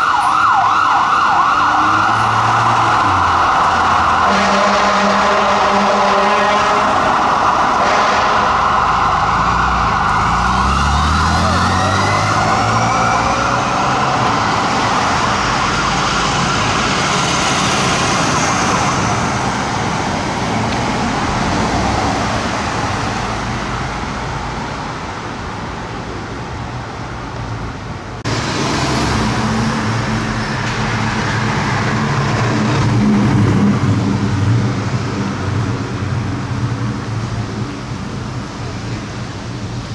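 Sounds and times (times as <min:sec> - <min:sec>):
fire engine siren wailing: 0:00.0 - 0:21.8
blaring horn tone: 0:04.1 - 0:08.8.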